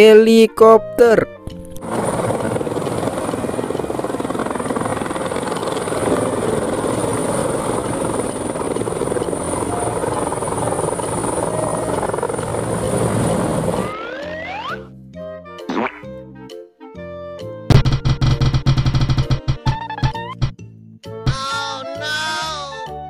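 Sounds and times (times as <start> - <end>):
high turbine whine: 1.8 - 14.6
helicopter rotor chop: 1.8 - 14.7, 17.7 - 20.6.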